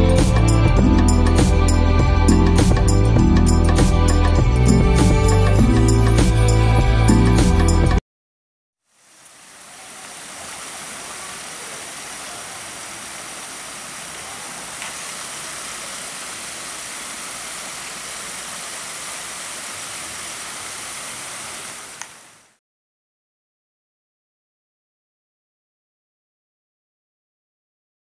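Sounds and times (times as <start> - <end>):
water splashing over rocks: 9.1 - 22.4
light click: 22.0 - 22.2.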